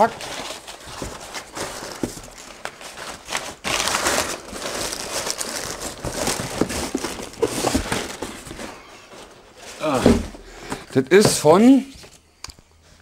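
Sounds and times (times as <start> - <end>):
packing paper rustling: 0.0 - 12.2
cardboard scraping: 3.8 - 12.2
box knocks: 9.9 - 11.5.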